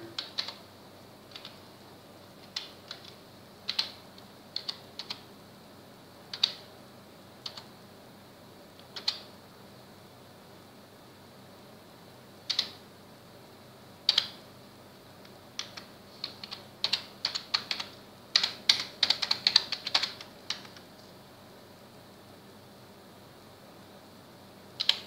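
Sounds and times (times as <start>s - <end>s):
computer keyboard typing: 0.0s - 0.6s, 1.3s - 1.6s, 2.4s - 5.3s, 6.3s - 6.7s, 7.4s - 7.7s, 8.8s - 9.3s, 12.5s - 12.8s, 14.1s - 14.4s, 15.6s - 20.9s, 24.8s - 25.0s.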